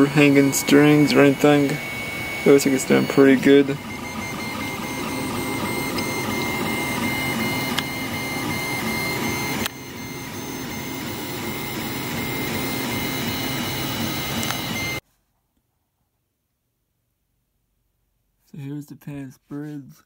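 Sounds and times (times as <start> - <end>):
stepper motors whining: 0.0 - 15.0.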